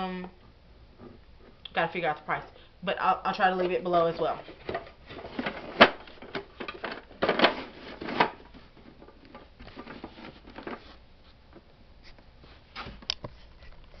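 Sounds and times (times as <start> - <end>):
plastic organizer knocks and rustles: 4.5 - 10.9.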